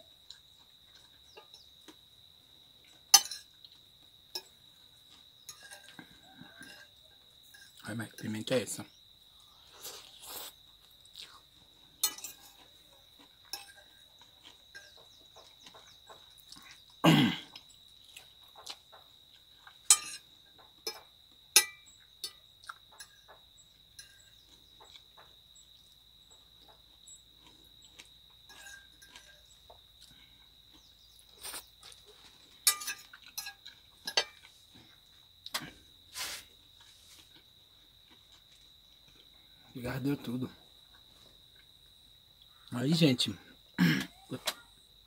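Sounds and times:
fork clinking on ceramic plate: 3.2s - 3.5s, 5.5s - 6.9s, 12.0s - 12.6s, 13.5s - 14.0s, 19.9s - 20.2s, 20.8s - 23.2s, 32.7s - 34.5s.

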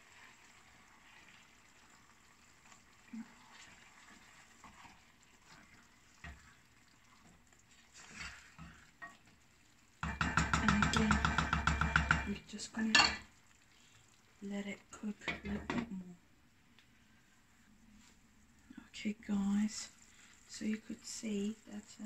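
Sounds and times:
chicken simmering in a saucepan: 0.0s - 22.0s
spatula knocking a pan: 10.0s - 12.4s
utensils clattering against a pan: 10.0s - 13.2s.

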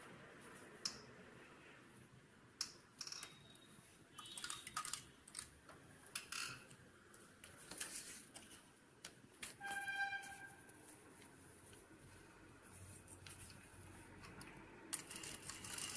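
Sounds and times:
fabric rustling: 7.1s - 14.2s.

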